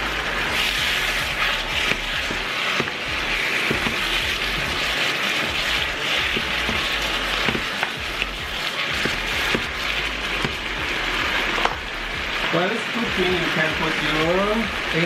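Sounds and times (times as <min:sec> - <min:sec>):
chicken sizzling in a frying pan: 0:00.0 - 0:15.0
spatula knocking and scraping pan: 0:00.5 - 0:12.4.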